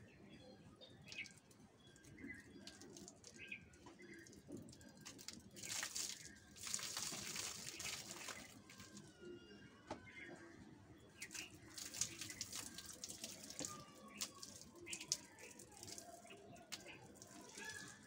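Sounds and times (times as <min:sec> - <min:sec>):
water splattering onto ground: 0:01.0 - 0:09.1, 0:11.0 - 0:18.0.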